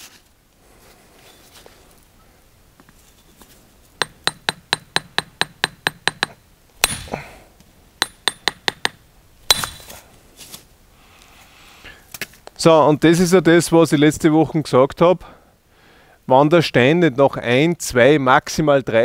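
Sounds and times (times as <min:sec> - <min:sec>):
hammer striking a chisel: 0:04.0 - 0:07.2, 0:08.0 - 0:09.9.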